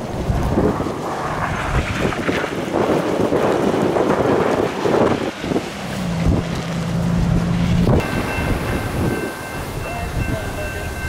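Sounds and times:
blizzard wind buffeting microphone: 0.0s - 11.0s
low hum: 5.6s - 11.0s.

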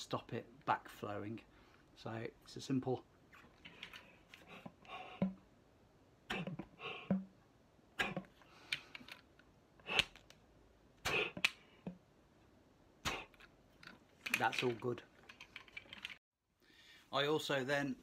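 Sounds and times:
breaths puffing through mouthpiece: 3.6s - 5.4s, 6.3s - 7.3s, 9.8s - 10.3s, 11.0s - 12.0s, 13.0s - 13.5s.

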